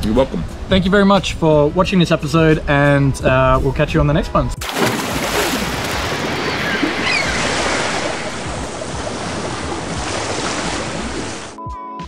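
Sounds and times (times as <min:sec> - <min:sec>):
ocean surf rushing: 0:04.7 - 0:11.6.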